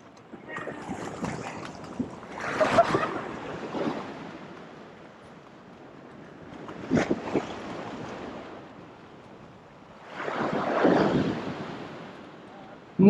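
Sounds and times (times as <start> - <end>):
sea swell washing against rocks: 10.0 - 12.4.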